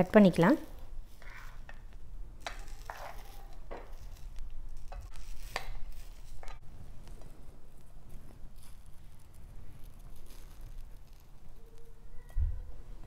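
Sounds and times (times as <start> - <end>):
pizza cutter scraping plate: 1.1 - 1.8, 2.4 - 6.6.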